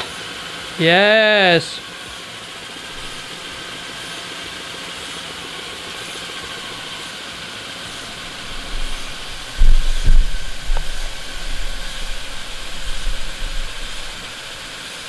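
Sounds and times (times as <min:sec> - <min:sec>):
air compressor whirring with hiss: 0:00.0 - 0:00.9, 0:01.7 - 0:15.0
low thumps: 0:08.4 - 0:14.1.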